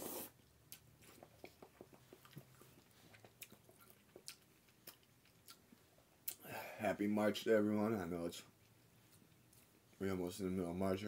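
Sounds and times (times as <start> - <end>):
slurping noodles: 0.0 - 0.4
faint chewing: 0.0 - 6.5, 8.4 - 10.0.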